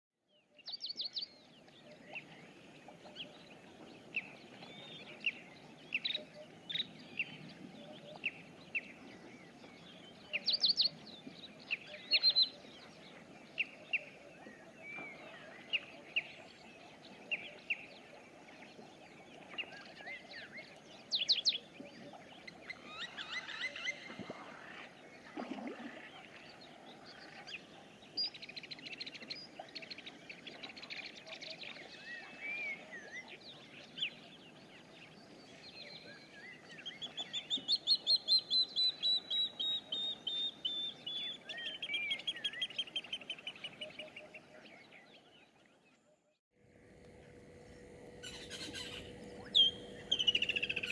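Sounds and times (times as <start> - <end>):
birds chirping and whistling: 48.1 - 50.9.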